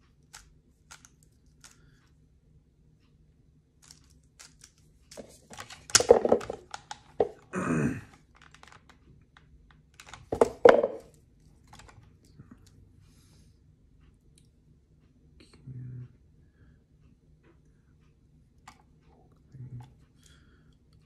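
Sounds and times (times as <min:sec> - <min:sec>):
hands handling cube and box: 0:00.3 - 0:01.8, 0:03.8 - 0:07.5, 0:08.1 - 0:12.0.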